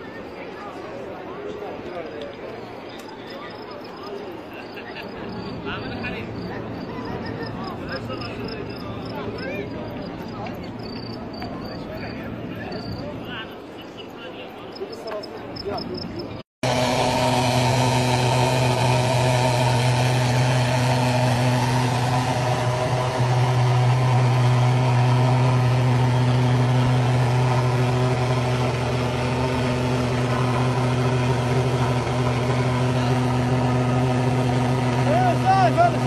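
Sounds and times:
engine drone with low hum: 0:04.4 - 0:13.5, 0:15.2 - 0:36.0
steady tones: 0:16.6 - 0:36.0.

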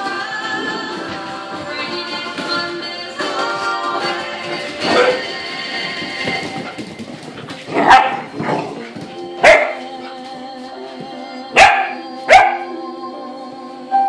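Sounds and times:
background music: 0:00.0 - 0:14.0
puppies barking: 0:07.7 - 0:08.8, 0:09.4 - 0:10.0, 0:11.6 - 0:12.7.

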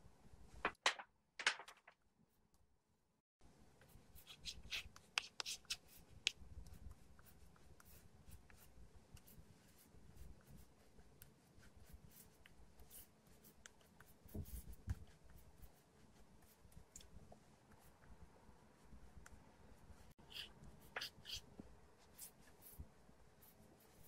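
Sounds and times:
chalk scratching on blackboard: 0:04.1 - 0:06.4, 0:20.2 - 0:22.8.

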